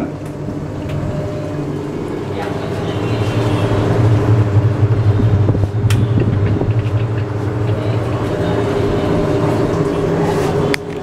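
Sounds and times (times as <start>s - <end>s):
washing machine motor hum: 0.0s - 11.0s.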